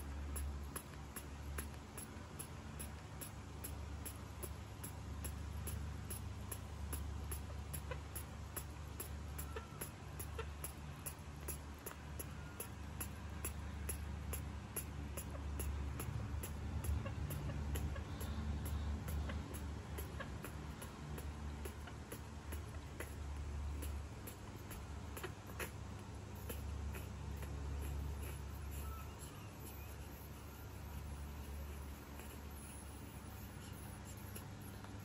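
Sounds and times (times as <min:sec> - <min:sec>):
even ticking: 0:00.0 - 0:35.0
low steady hum: 0:00.0 - 0:35.0
faint short squeaks: 0:27.4 - 0:35.0.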